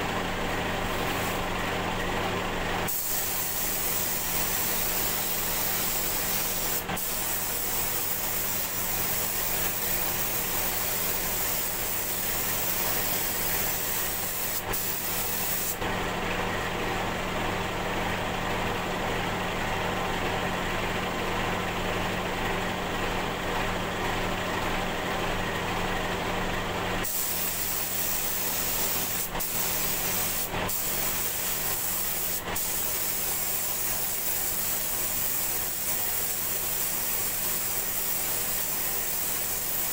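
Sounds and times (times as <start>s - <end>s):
paint spray gun hissing: 0.9s - 1.5s, 2.9s - 15.8s, 27.0s - 39.9s.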